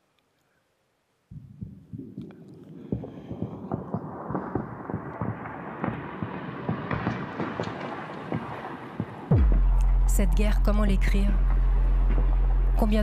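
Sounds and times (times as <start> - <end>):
rumbling electronic texture: 9.3 - 13.0.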